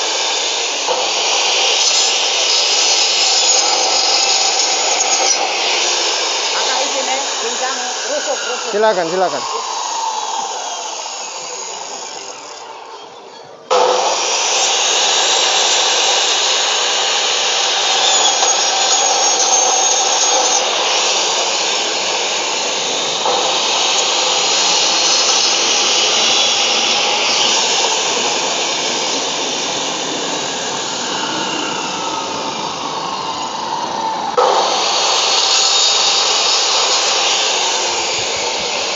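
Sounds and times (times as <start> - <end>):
cut-off saw cutting bone: 13.7 - 32.2.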